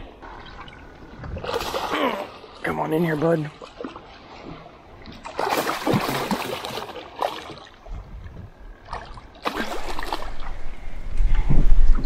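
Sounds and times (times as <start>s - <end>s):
fish thrashing and splashing: 0.2s - 2.6s, 3.5s - 7.8s, 8.8s - 10.6s.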